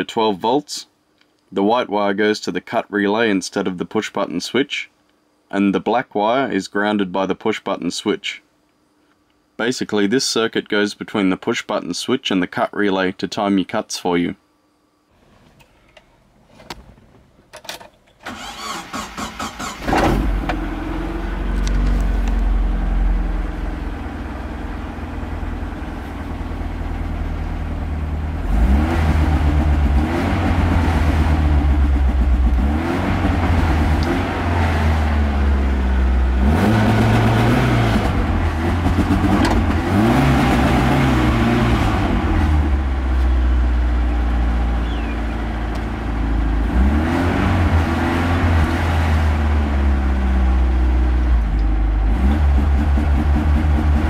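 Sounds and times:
engine starter cranking: 17.5s - 20.6s
engine revving with spark cut: 18.3s - 20.4s, 28.4s - 31.6s, 32.4s - 35.1s, 36.4s - 42.7s, 46.6s - 49.5s
petrol engine idling: 42.7s - 46.6s.

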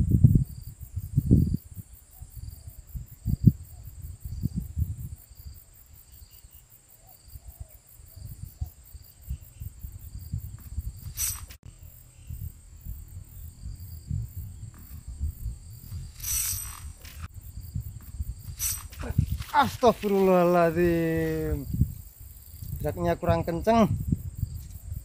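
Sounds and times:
insects chirping: 0.0s - 25.0s
short bursts of noise: 11.0s - 11.6s, 15.8s - 17.3s, 18.4s - 20.3s.

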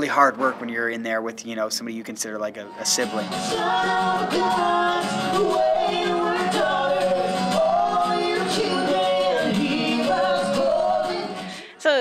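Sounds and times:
strummed acoustic guitar: 0.0s - 11.6s
man singing into a microphone: 3.3s - 11.5s.

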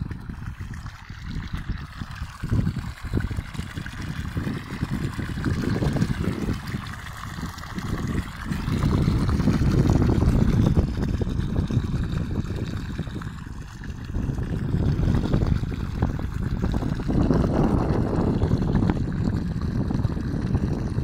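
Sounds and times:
water gushing from pipe into pool: 0.0s - 21.0s.

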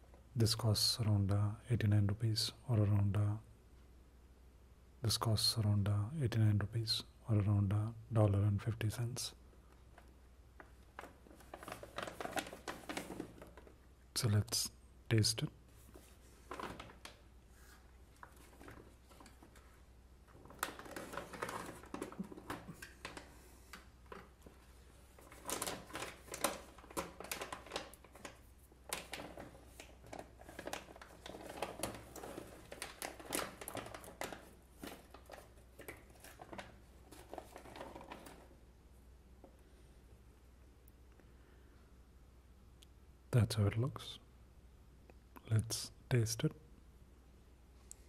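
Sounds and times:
popcorn rustling: 9.7s - 13.9s, 15.7s - 38.7s
popcorn bag crinkling: 10.7s - 13.8s, 16.0s - 38.6s.

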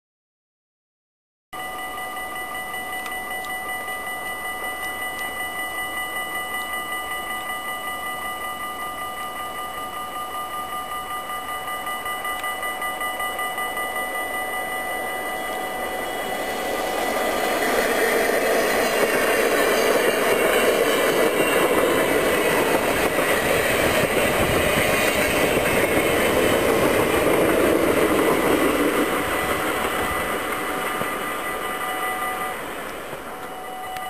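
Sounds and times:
steady ringing tones: 1.6s - 34.0s
train rumbling past at speed: 15.0s - 34.0s.

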